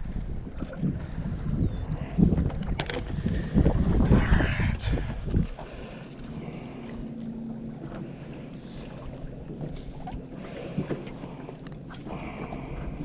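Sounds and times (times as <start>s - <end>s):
wind on microphone: 0.0s - 7.0s
water against boat hull: 0.1s - 13.0s.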